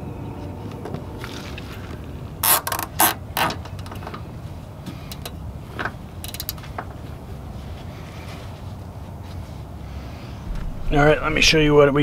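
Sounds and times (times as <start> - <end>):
zip tie ratcheting clicks: 2.4 - 3.9, 5.1 - 5.4, 6.2 - 6.7.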